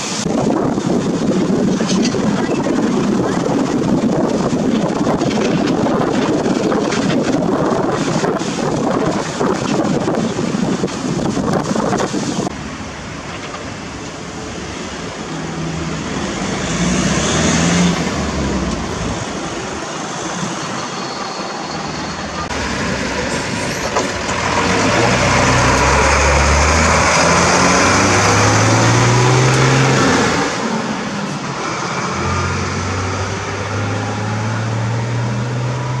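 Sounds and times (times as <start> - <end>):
road traffic: 0.0 - 36.0
fire engine driving past: 12.4 - 36.0
backhoe loader diesel engine: 12.5 - 35.1.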